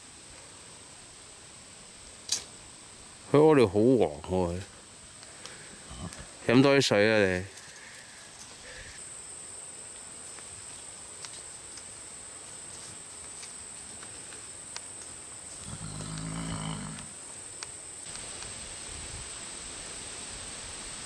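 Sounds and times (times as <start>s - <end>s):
high insect trill: 0.7s - 21.0s
horse calling: 15.6s - 17.2s.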